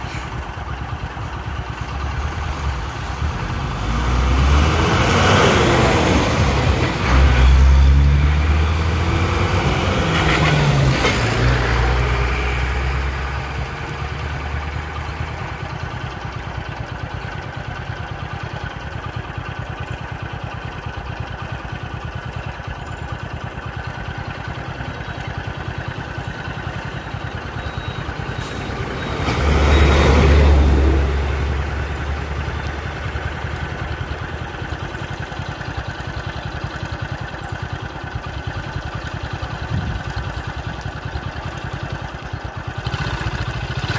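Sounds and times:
passing vehicle rush: 0.0 - 0.9, 1.9 - 15.9, 26.5 - 35.5
vehicle engine idling: 0.0 - 43.9.

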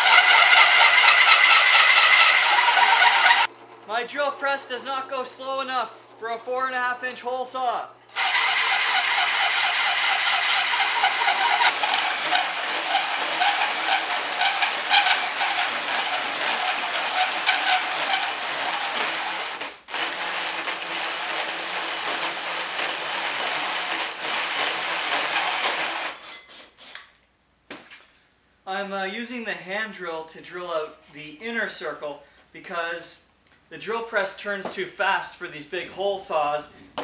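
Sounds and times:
hole saw cutting metal: 0.0 - 3.5, 8.1 - 27.0.

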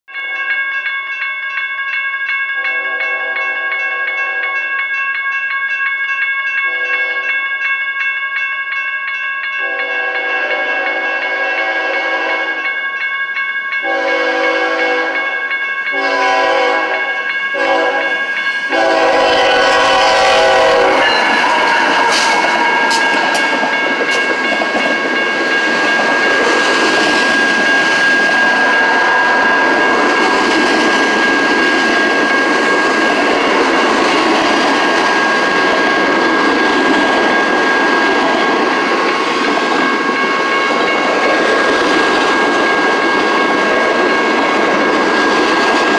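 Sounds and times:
freight train rolling on rails: 9.1 - 45.9
train air horn blasts: 9.6 - 12.6, 13.8 - 15.3, 16.0 - 23.4.

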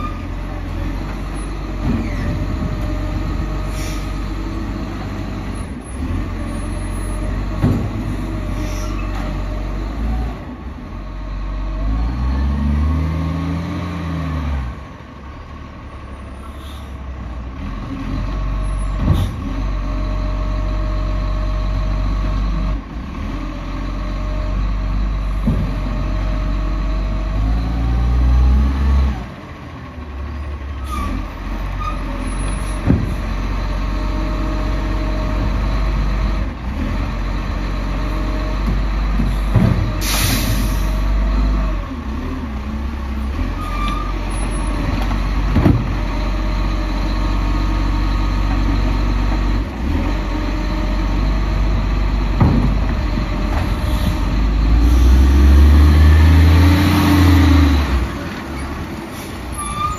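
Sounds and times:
garbage truck diesel engine: 0.0 - 59.9
air brake hiss: 3.7 - 4.2, 8.6 - 9.0, 16.5 - 17.0, 40.0 - 41.0.

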